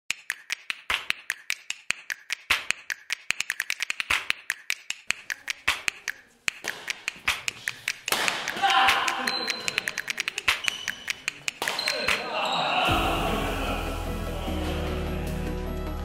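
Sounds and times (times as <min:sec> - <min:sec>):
rapid sharp snapping clicks: 0:00.1 - 0:12.2.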